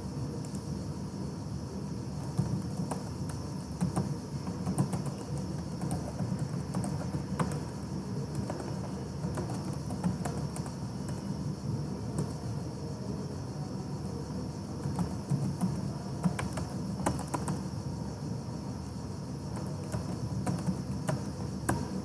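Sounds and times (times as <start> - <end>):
low background hum: 0.0 - 22.0
keyboard keys clicking: 2.2 - 11.3, 14.8 - 17.7, 19.5 - 22.0.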